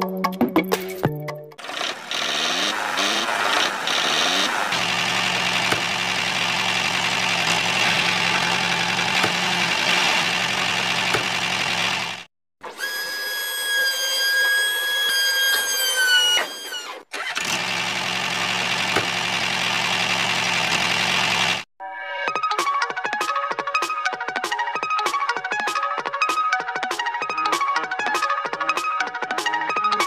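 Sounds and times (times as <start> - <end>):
high motor whine: 1.6 - 12.3
model tractor engine hum: 1.6 - 12.3, 14.6 - 21.7.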